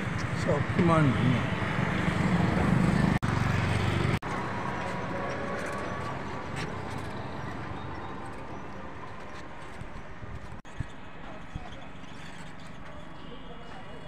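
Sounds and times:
vehicle engine humming: 0.0 - 10.6
traffic rumble: 0.0 - 14.0.

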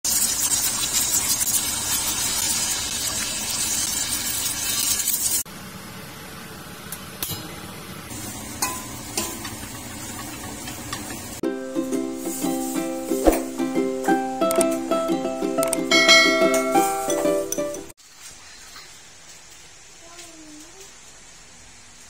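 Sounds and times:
egg sizzling in hot oil: 0.0 - 5.5, 8.1 - 13.2
metal ladle clinking in wok: 8.6 - 9.5, 15.9 - 17.0.

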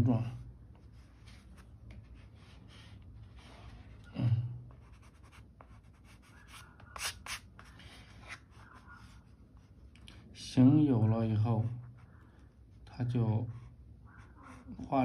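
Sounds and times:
pencil scratching on paper: 4.7 - 9.8, 13.6 - 14.9.

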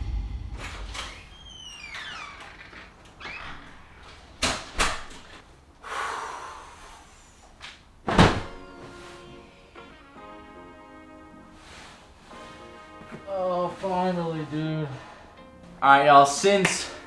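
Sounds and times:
body thumping onto bed: 8.0 - 9.2.

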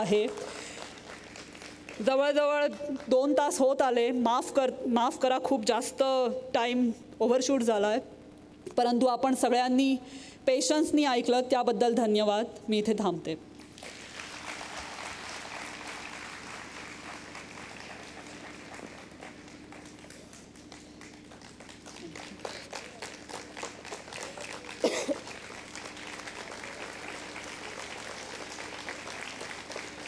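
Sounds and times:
audience applauding: 0.0 - 2.0, 13.6 - 30.0.

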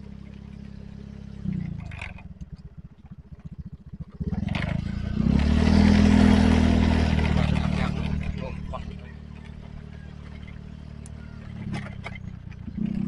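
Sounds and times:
motorcycle engine idling and revving: 0.0 - 13.0.

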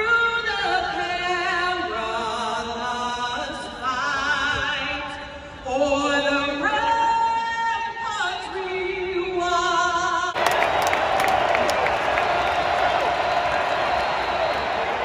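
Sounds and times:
person singing with wide vibrato: 0.0 - 10.4.

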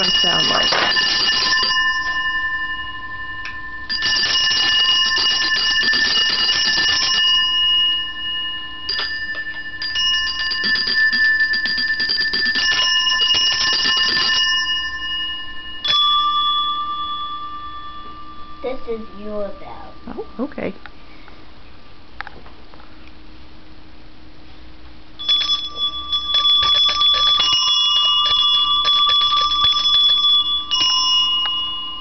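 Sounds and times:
handbells ringing: 0.0 - 20.4, 25.2 - 32.0.

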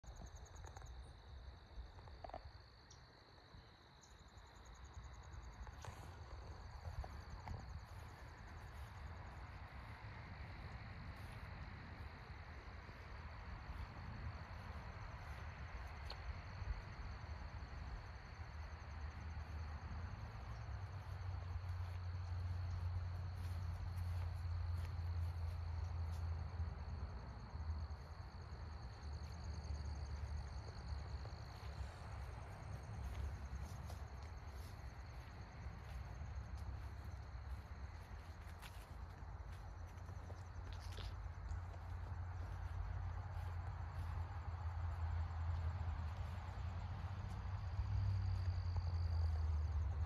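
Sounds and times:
insects trilling: 0.1 - 50.0.

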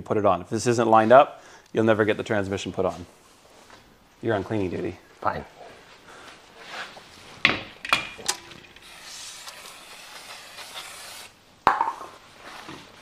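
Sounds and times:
aerosol can spraying hiss: 8.8 - 11.3.

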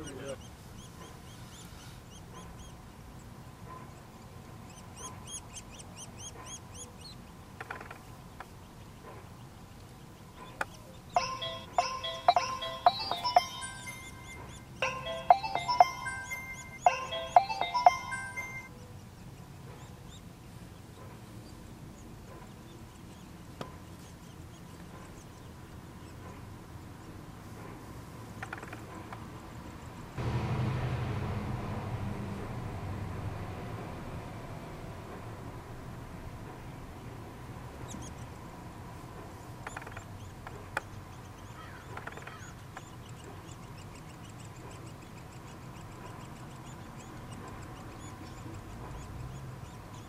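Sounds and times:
nestlings begging calls: 0.0 - 3.4, 4.0 - 19.1, 39.4 - 50.0
steady low rumble: 30.2 - 39.6.

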